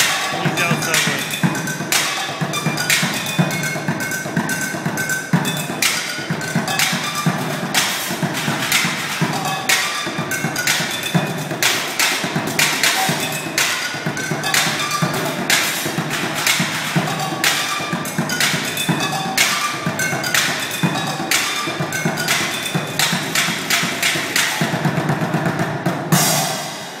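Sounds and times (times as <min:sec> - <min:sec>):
bucket drumming: 0:00.0 - 0:26.6.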